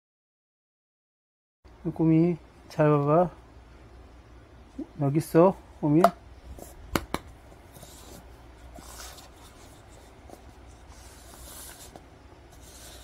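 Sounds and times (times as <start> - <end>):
paper cups scraping on fabric mat: 7.6 - 13.0.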